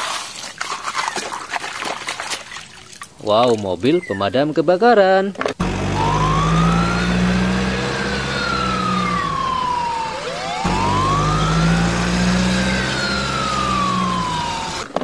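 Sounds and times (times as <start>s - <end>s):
fire truck siren wailing: 5.6s - 15.0s
low engine hum: 5.6s - 15.0s.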